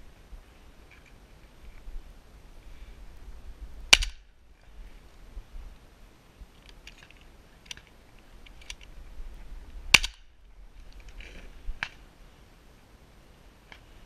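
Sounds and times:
shotgun firing: 3.9 - 4.2
sharp cracks: 3.9 - 4.4, 9.9 - 10.3.

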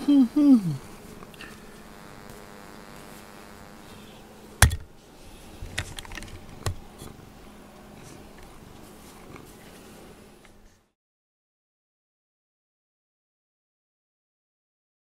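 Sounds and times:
knock on camera: 4.6 - 4.9.

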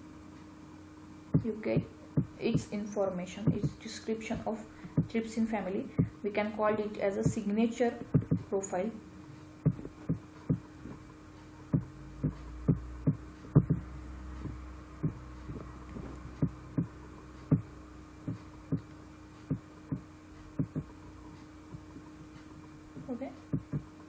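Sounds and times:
steady low hum: 0.0 - 24.0
soft low knocks: 3.4 - 5.3, 8.1 - 8.6, 9.6 - 23.9.

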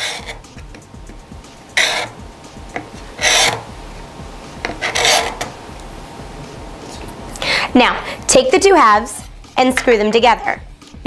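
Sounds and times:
chisel scraping plastic: 0.0 - 0.4, 1.8 - 2.2, 2.8 - 3.7, 4.6 - 5.5.

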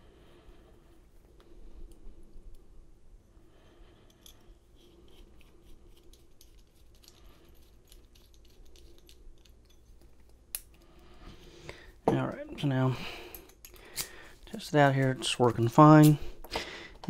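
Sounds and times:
small metallic clicks and scrapes: 4.1 - 11.0.

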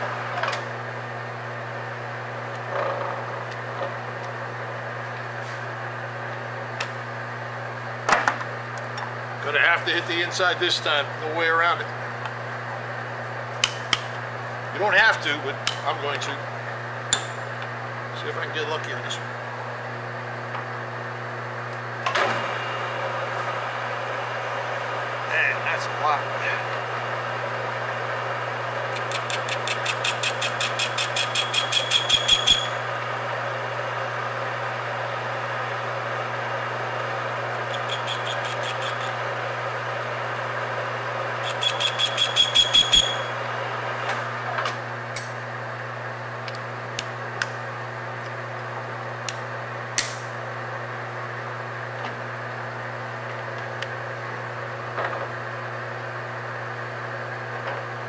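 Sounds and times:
metal lathe humming: 25.9 - 44.4.

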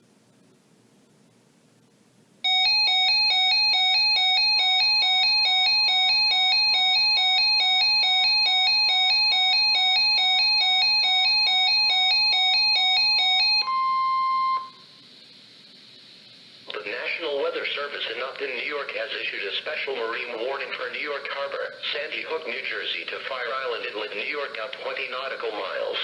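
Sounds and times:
two-pitch alarm beeps: 2.4 - 15.0
steady warning tone: 2.5 - 15.1
faint hiss: 14.7 - 19.8.

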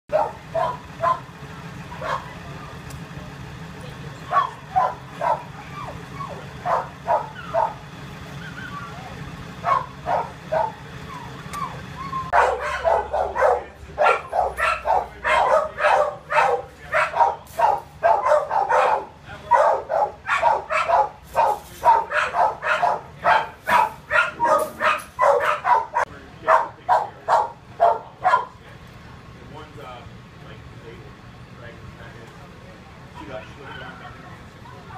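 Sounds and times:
dogs barking: 0.1 - 2.4, 4.2 - 28.6.

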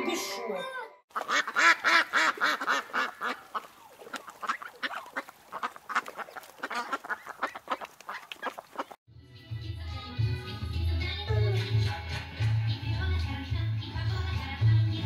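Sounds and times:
ducks quacking: 1.1 - 9.0.

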